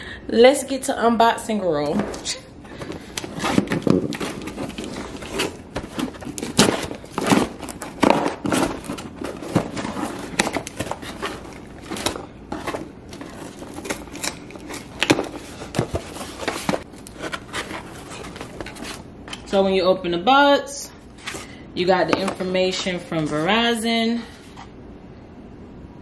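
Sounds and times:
cardboard scraping and crinkling: 0:02.8 - 0:19.1.

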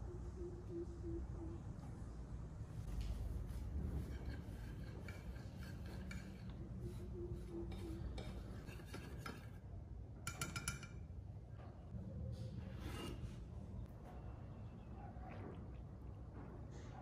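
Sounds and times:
whisk scraping glass dish: 0:04.0 - 0:06.5.

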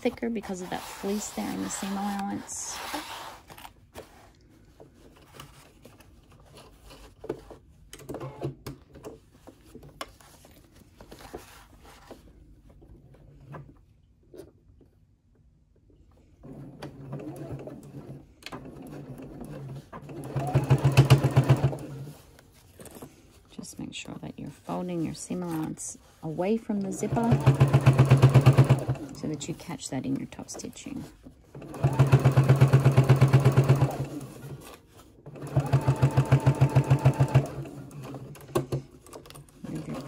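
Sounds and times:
sewing machine stitching: 0:16.4 - 0:22.2, 0:26.8 - 0:29.6, 0:30.5 - 0:34.7, 0:35.3 - 0:40.0.

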